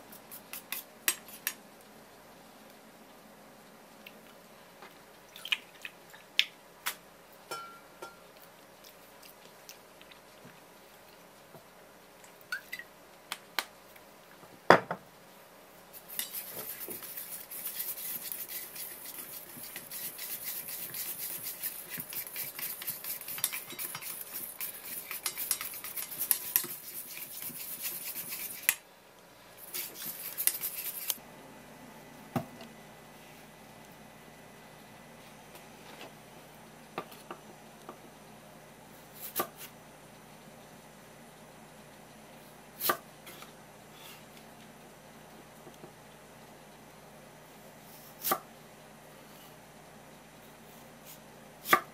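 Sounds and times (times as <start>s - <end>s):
spatula scraping metal bowl: 16.0s - 28.7s, 29.6s - 31.2s.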